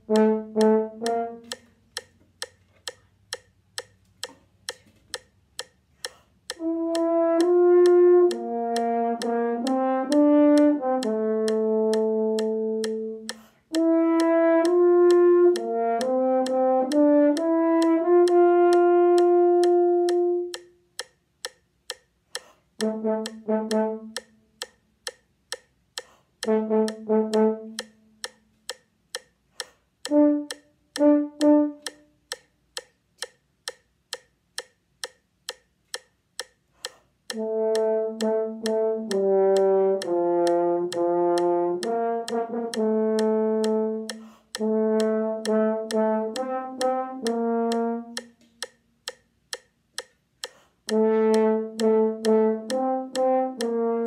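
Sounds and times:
french horn playing: 0:00.0 - 0:01.6, 0:06.6 - 0:13.2, 0:13.8 - 0:20.5, 0:22.8 - 0:24.2, 0:26.4 - 0:27.8, 0:30.1 - 0:31.9, 0:37.4 - 0:48.2, 0:50.9 - 0:54.0
metronome clicking: 0:00.0 - 0:54.0.

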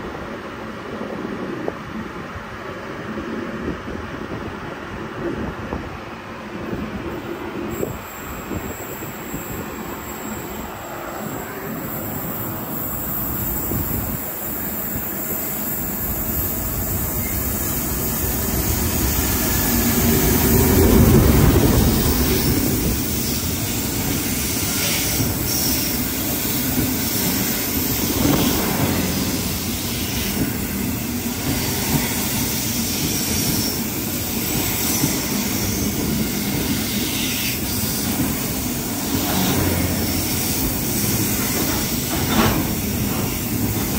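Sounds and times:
freight train rumbling past: 0:00.0 - 0:43.9
train wheels clicking: 0:11.8 - 0:43.9.

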